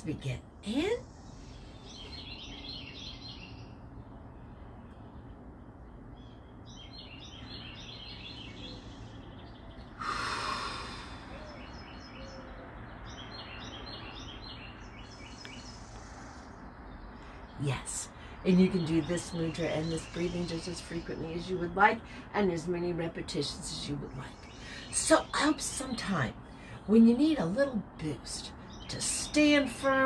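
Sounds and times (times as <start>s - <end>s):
songbirds chirping: 0.0s - 30.0s
woman breathing slowly: 8.6s - 11.6s.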